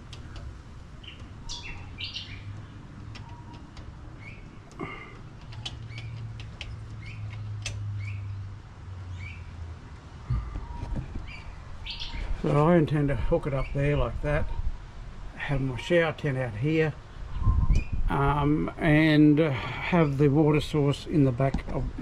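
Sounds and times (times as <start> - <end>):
low steady hum: 0.0 - 17.2
birds chirping: 0.0 - 21.9.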